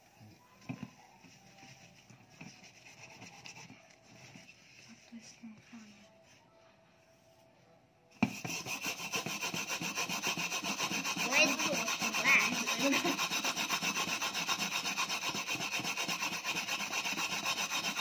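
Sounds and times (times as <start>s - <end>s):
steel wool scrubbing a pan: 8.2s - 18.0s.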